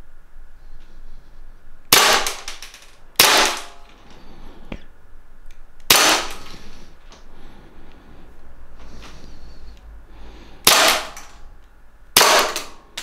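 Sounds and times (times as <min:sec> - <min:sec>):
airsoft pistol shots: 0:01.9 - 0:03.8, 0:05.9 - 0:06.5, 0:10.6 - 0:11.3, 0:12.2 - 0:12.8.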